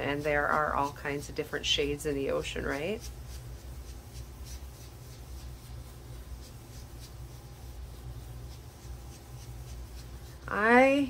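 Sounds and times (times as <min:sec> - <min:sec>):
ink-blending tool swishing on card: 0:00.0 - 0:11.0
low steady hum: 0:00.0 - 0:11.0.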